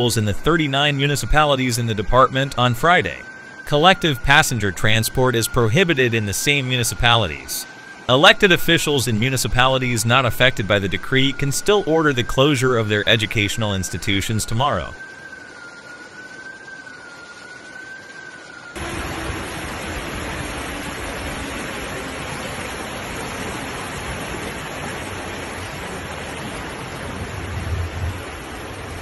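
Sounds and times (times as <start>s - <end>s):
siren wailing: 0.0s - 29.0s
floodwater rushing: 18.8s - 29.0s.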